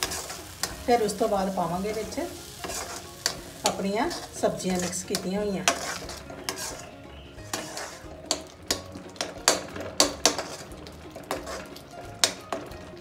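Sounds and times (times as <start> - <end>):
metal spatula knocking on pan: 7.5 - 12.8.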